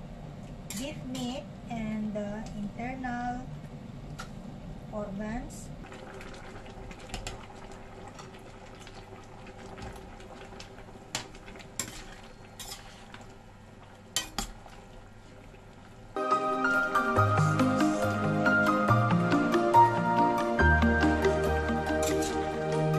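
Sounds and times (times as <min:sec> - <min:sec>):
sauce simmering: 0:05.8 - 0:22.9
metal ladle scraping a wok: 0:11.8 - 0:13.2, 0:21.8 - 0:22.5.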